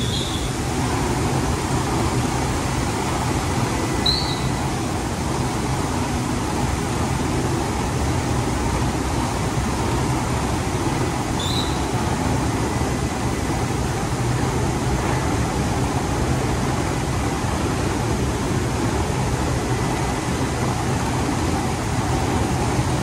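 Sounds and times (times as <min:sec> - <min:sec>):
short high chirps: 0:00.0 - 0:00.6, 0:04.0 - 0:04.6.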